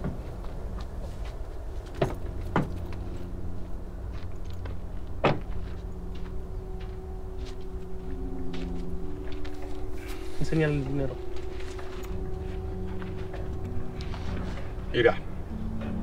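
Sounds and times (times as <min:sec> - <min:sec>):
steady low hum: 0:00.0 - 0:16.0
car door clunks: 0:05.2 - 0:05.6.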